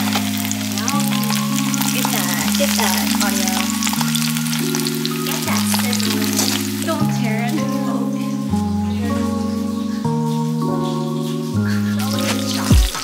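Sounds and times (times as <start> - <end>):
fish sizzling in hot oil: 0.0 - 7.3
background music sustained chords: 0.0 - 13.0.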